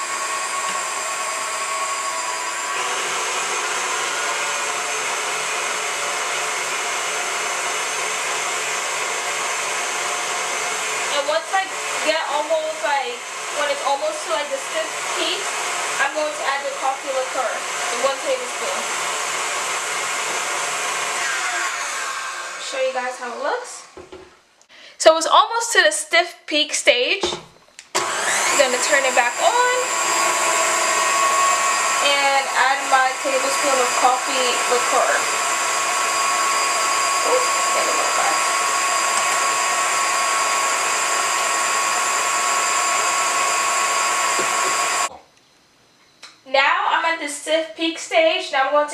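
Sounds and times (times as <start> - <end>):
stand mixer whipping cream: 0.0 - 22.6, 28.0 - 45.1
whisk whipping cream: 28.0 - 45.1.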